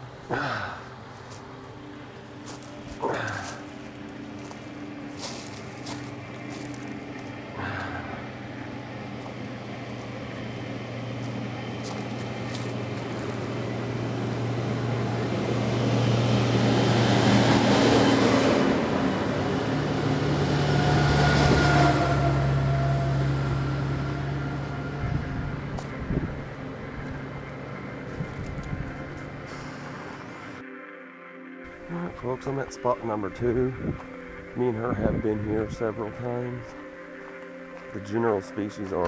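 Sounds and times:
low engine hum: 0.0s - 30.6s
vehicles passing close by: 0.0s - 30.6s, 31.5s - 39.0s.

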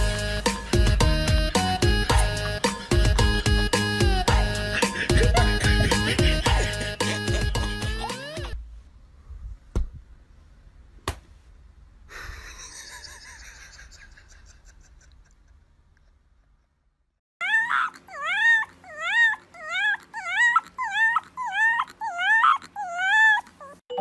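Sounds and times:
puppy howling in high yips: 17.4s - 23.9s.

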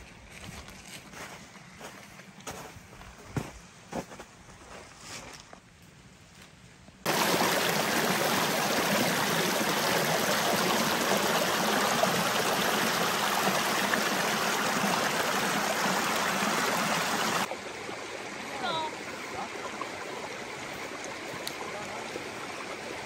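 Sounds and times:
stream rushing: 7.1s - 23.0s.

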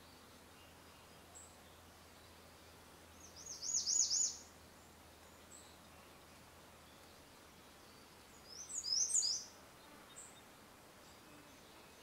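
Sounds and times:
faint steady hiss: 0.0s - 12.0s
bird singing whistled notes: 3.2s - 4.5s, 7.8s - 9.5s.

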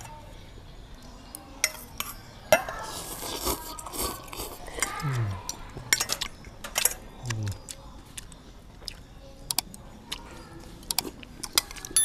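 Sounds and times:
noodles being slurped: 2.9s - 5.0s.

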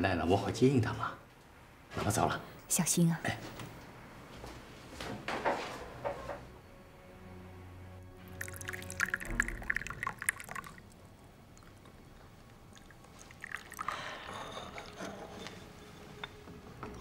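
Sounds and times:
tea pouring into cups: 8.0s - 15.6s.

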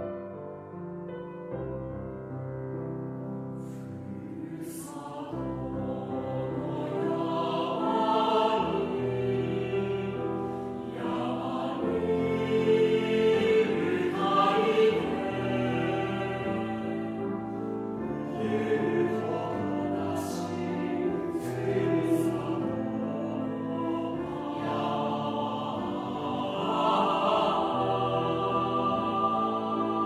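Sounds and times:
choir singing: 3.6s - 30.0s.

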